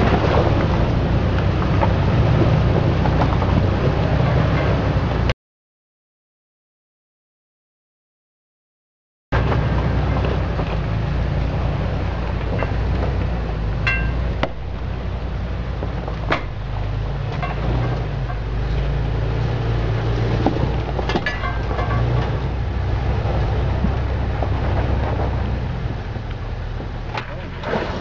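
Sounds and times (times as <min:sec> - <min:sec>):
suv engine at low revs: 0:00.0 - 0:05.3, 0:09.3 - 0:28.0
metallic clinks and knocks: 0:13.8 - 0:14.4, 0:21.0 - 0:22.4.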